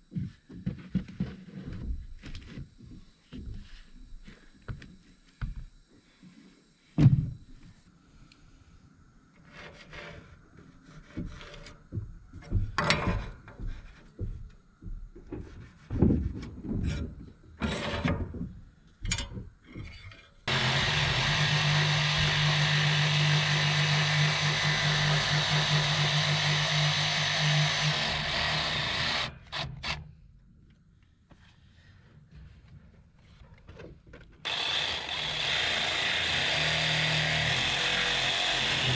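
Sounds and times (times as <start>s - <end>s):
knocks and scraping of board handling: 15.2s - 18.6s
jigsaw cutting: 20.5s - 30.0s, 34.5s - 38.9s.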